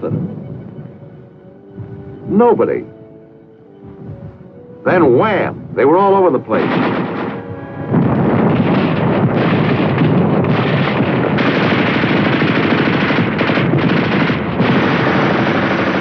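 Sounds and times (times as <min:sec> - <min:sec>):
machine-gun and small-arms fire: 0:06.6 - 0:16.0.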